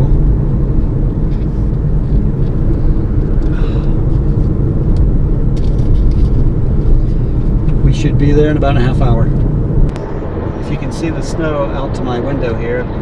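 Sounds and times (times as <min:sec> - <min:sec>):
car cabin road and engine rumble: 0:00.0 - 0:13.0.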